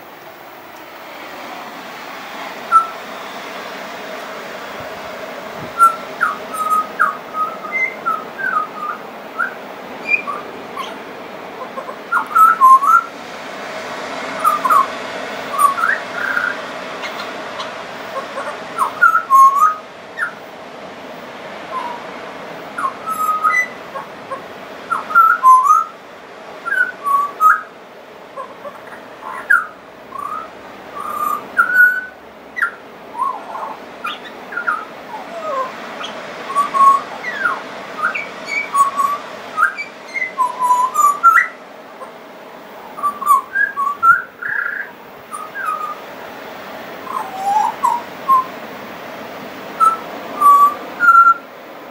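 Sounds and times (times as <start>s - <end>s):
bird singing fluting whistles: 2.6s - 3.4s, 5.7s - 11.0s, 11.6s - 13.1s, 14.4s - 14.9s, 15.5s - 20.4s, 21.7s - 22.1s, 22.8s - 24.1s, 24.9s - 26.0s, 26.6s - 27.7s, 28.4s - 42.1s, 42.8s - 46.0s, 47.0s - 48.6s, 49.8s - 51.4s.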